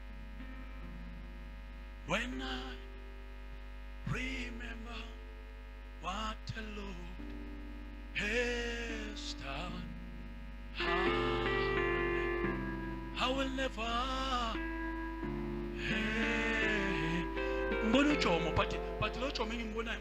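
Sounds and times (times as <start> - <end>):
electrical hum: 0.0 - 20.0
soft background music: 7.2 - 20.0.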